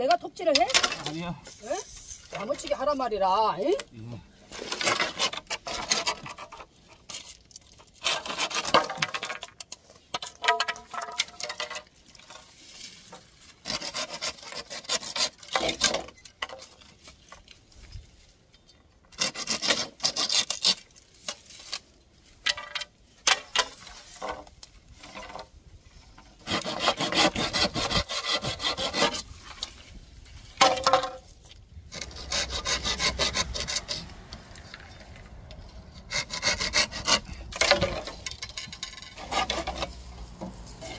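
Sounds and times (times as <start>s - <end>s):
hand saw cutting bamboo: 4.5s - 6.6s, 8.0s - 9.1s, 13.6s - 16.7s, 19.1s - 21.8s, 26.2s - 29.8s, 31.9s - 34.6s, 35.5s - 40.9s.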